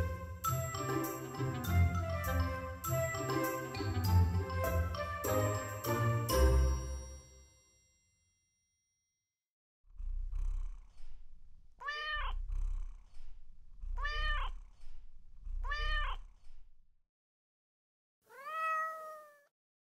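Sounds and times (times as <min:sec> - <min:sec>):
cat purring: 0:09.9 - 0:16.8
cat meowing: 0:11.8 - 0:12.4, 0:14.0 - 0:14.6, 0:15.6 - 0:16.2, 0:18.3 - 0:19.5.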